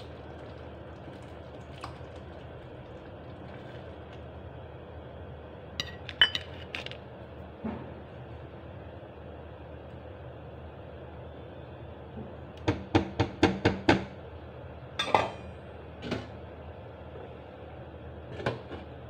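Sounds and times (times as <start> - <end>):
steady hum: 0.0 - 12.7.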